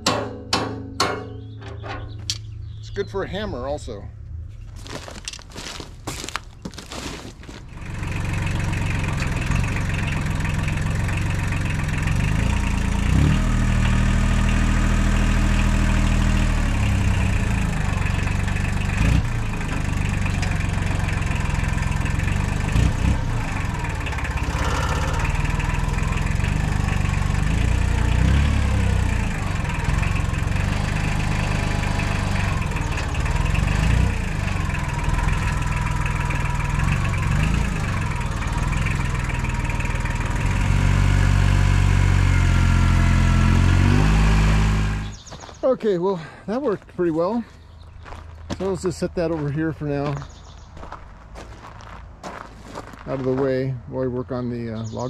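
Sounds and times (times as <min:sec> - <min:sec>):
wrench hammering on metal: 0:00.0 - 0:01.5
tractor diesel engine running: 0:00.0 - 0:55.0.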